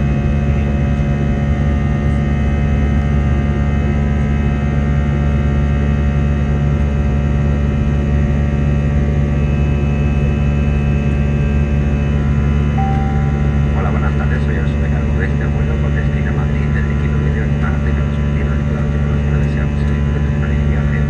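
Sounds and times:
aircraft cabin engine drone: 0.0 - 21.0
short faint single tone: 12.8 - 13.8.

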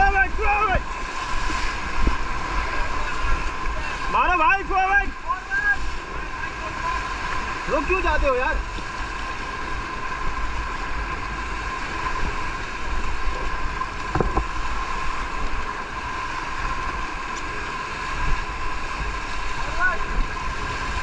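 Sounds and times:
wind buffeting microphone: 0.0 - 15.7
rushing whitewater: 0.0 - 21.0.

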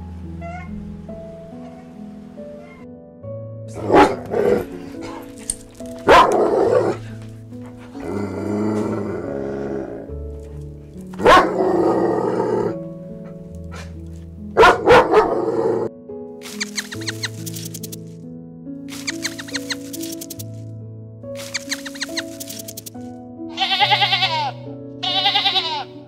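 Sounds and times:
background music: 0.0 - 26.0
dog barking: 3.8 - 5.3, 6.0 - 7.1, 11.2 - 11.7, 14.6 - 15.8.

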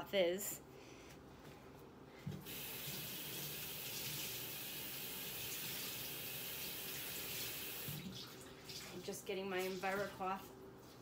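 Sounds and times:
faucet water running: 2.4 - 10.4.

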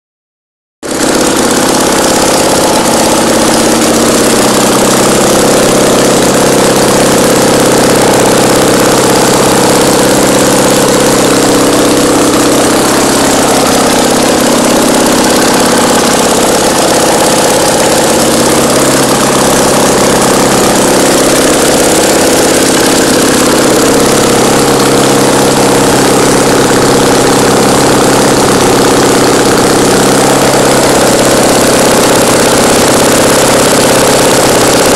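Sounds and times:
two-cylinder engine running: 0.8 - 34.9.

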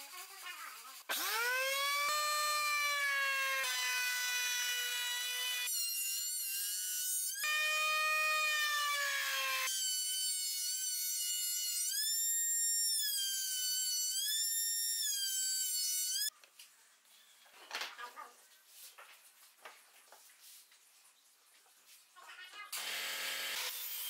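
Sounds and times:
router whining: 1.1 - 16.3, 22.8 - 24.0.

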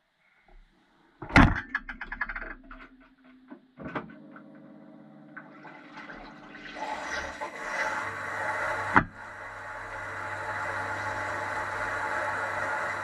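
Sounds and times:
dishwasher clunk: 1.2 - 2.7
motor humming: 3.9 - 13.0
water running in: 4.2 - 13.0.

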